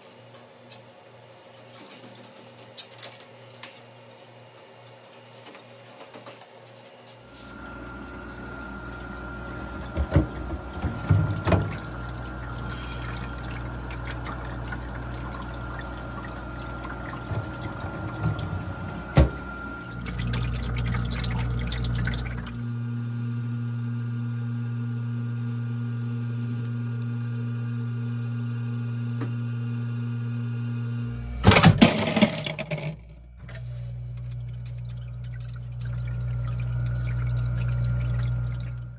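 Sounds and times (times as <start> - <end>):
machine low hum: 0.0 - 38.9
water pouring and trickling: 10.6 - 18.9, 19.9 - 22.6, 33.9 - 38.9
ice clatter: 31.5 - 33.0.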